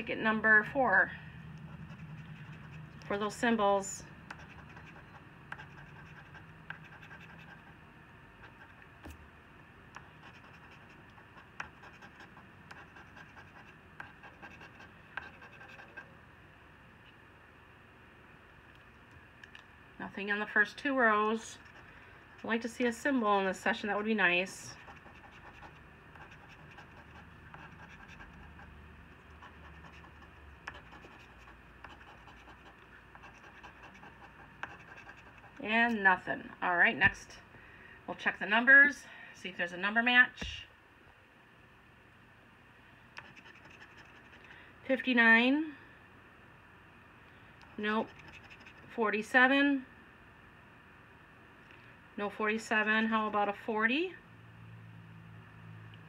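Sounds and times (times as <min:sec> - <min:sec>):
coin scraping scratch card: 0:04.3 - 0:07.7, 0:29.3 - 0:35.6, 0:43.2 - 0:44.5, 0:48.0 - 0:48.9.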